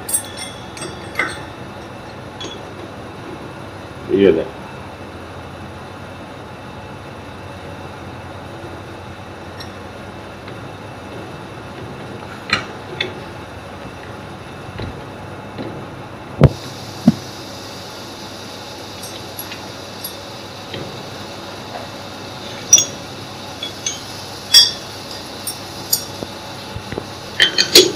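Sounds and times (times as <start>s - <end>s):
metal clinks: 0.0s - 2.8s, 19.0s - 20.3s, 22.6s - 23.0s, 23.6s - 26.3s
steady background hum: 0.0s - 27.9s.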